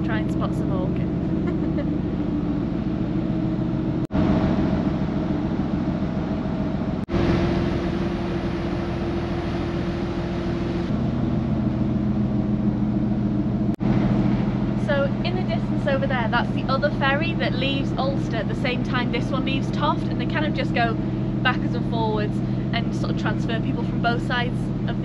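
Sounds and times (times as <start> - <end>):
ferry engines droning: 0.0 - 25.0.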